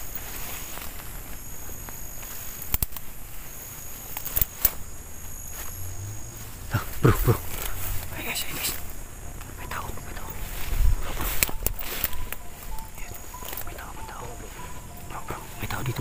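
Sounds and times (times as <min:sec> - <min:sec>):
footsteps rustling through weeds: 0:00.0 - 0:16.0
insects calling: 0:00.0 - 0:16.0
sharp clicks: 0:02.2 - 0:03.2, 0:04.0 - 0:04.9, 0:06.8 - 0:16.0.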